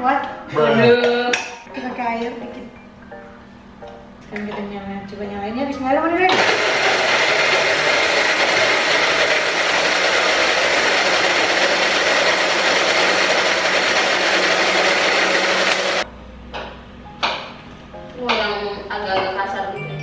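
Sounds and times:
blender whining: 0:06.3 - 0:16.1.

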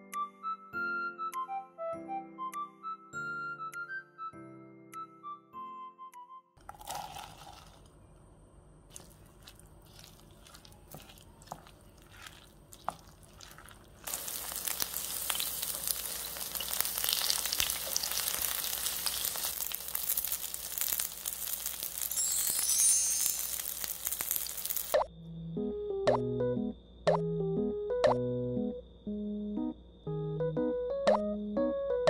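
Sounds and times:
mixing vegetables into batter: 0:08.9 - 0:20.2
batter sizzling in hot oil: 0:08.9 - 0:25.0.

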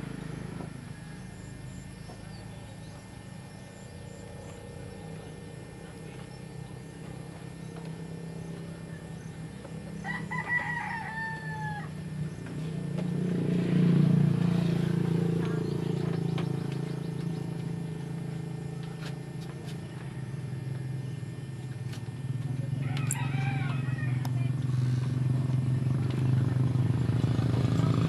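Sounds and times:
low steady drone: 0:00.0 - 0:28.0
rooster crowing: 0:10.0 - 0:12.1, 0:22.8 - 0:24.5.

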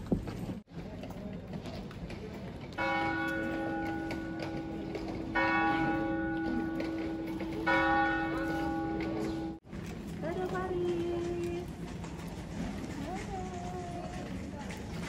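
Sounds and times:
church bell ringing: 0:02.8 - 0:09.6.

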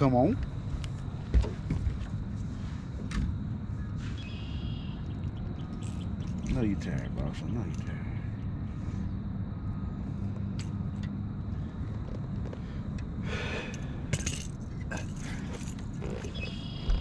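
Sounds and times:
low steady rumble: 0:00.0 - 0:17.0
fishing tackle rattling: 0:14.1 - 0:16.4.

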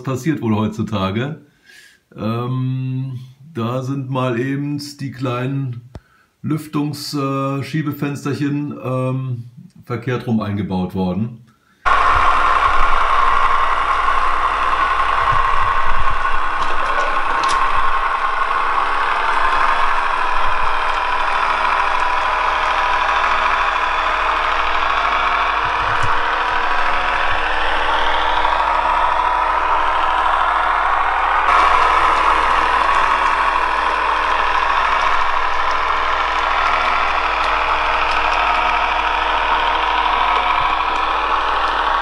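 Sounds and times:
model train drone: 0:11.8 - 0:42.0.

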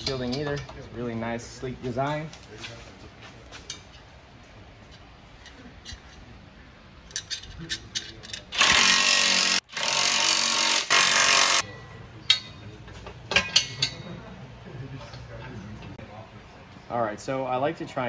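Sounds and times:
cordless power tool running nuts: 0:08.6 - 0:11.6.

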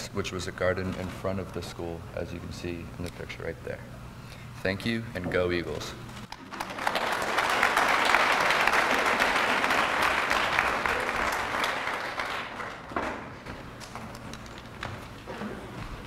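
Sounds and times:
audience applauding: 0:06.3 - 0:13.3.

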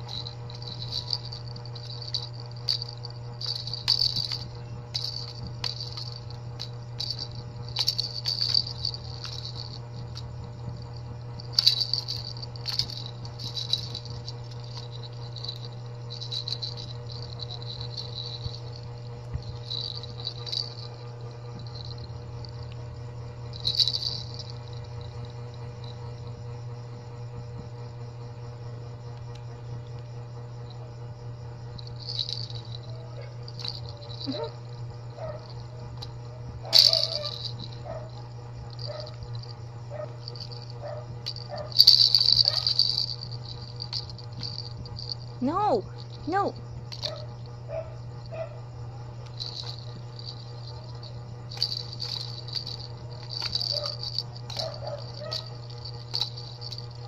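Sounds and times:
plastic baby rattle shaking: 0:00.0 - 0:18.8, 0:19.4 - 0:22.6, 0:23.5 - 0:25.1, 0:31.8 - 0:34.6, 0:35.4 - 0:36.1, 0:36.7 - 0:39.5, 0:40.1 - 0:47.3, 0:49.2 - 0:57.0.

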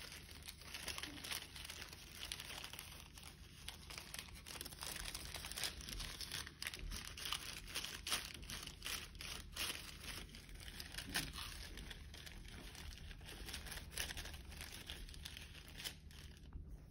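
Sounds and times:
paper crinkling and rustling: 0:00.0 - 0:16.9.

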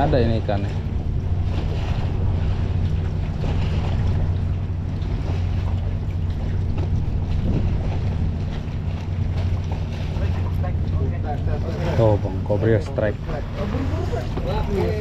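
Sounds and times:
wind on microphone: 0:00.0 - 0:10.3
boat engine idling: 0:00.0 - 0:15.0
water lapping: 0:00.0 - 0:15.0.

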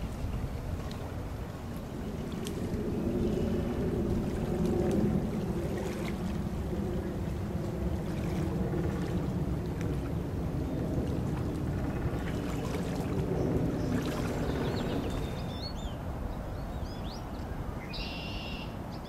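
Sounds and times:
wind rumble: 0:00.0 - 0:18.0
lapping water: 0:00.7 - 0:15.5.

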